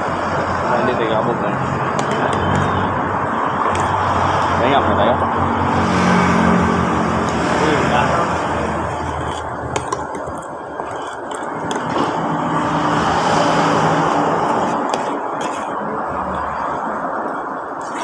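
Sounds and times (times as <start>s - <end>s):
road traffic noise: 0.0s - 18.0s
vehicle humming past: 2.9s - 9.0s.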